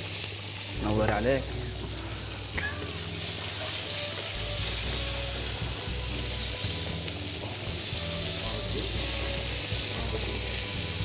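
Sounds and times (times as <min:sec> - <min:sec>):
fish sizzling in a hot pan: 0:00.0 - 0:11.0.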